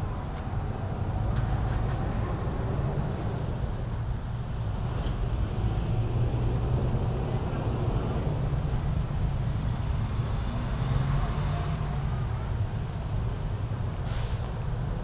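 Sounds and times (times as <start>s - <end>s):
low outdoor background rumble: 0.0s - 15.0s.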